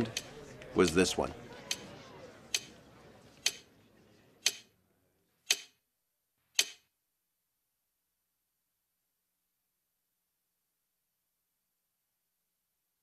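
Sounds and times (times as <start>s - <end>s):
clock ticking: 0.0s - 1.9s, 2.5s - 2.7s, 3.4s - 3.7s, 4.4s - 4.7s, 5.4s - 5.8s, 6.6s - 6.8s.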